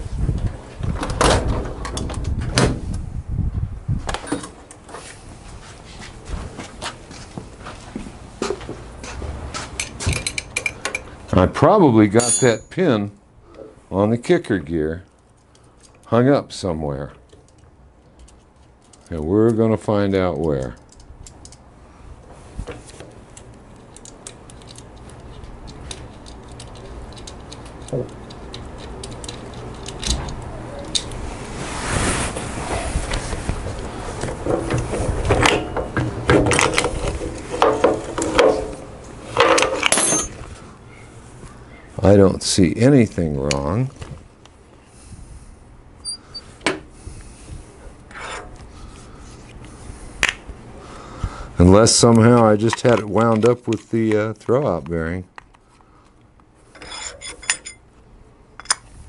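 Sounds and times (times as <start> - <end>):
metal parts clicking: 17.2 - 19.6, 20.3 - 21.6, 23.3 - 31.2, 39.4 - 40.4, 56.7 - 57.8, 58.6 - 58.9
metal scraping rub: 56.8 - 57.8.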